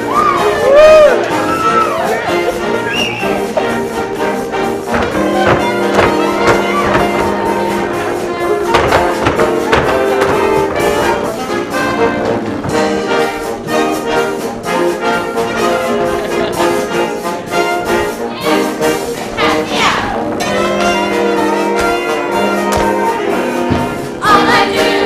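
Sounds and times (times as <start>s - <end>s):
brass-led show music: 0.0s - 25.0s.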